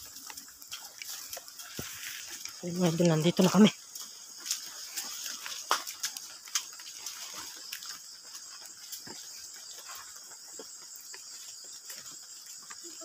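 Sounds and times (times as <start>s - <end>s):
rustling through grass and brush: 0.0s - 10.3s
crickets trilling: 0.0s - 13.0s.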